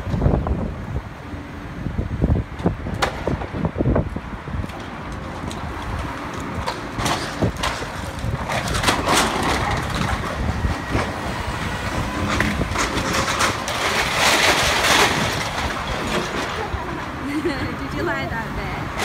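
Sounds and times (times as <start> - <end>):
bus passing: 0.0 - 19.0
car passing: 5.3 - 19.0
brick and debris crashing: 6.4 - 11.2, 12.0 - 17.1.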